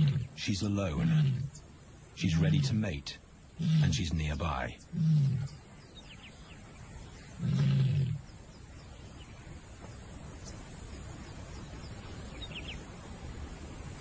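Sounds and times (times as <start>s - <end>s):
lion call: 0.0s - 1.6s, 3.6s - 5.6s, 7.3s - 8.3s
outdoor background noise: 0.0s - 14.0s.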